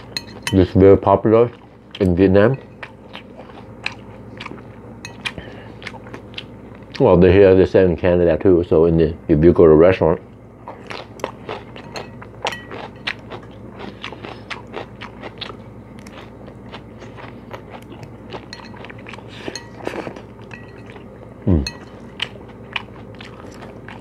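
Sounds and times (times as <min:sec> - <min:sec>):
close-miked chewing with crunches: 0:02.8 - 0:07.2, 0:10.6 - 0:24.0.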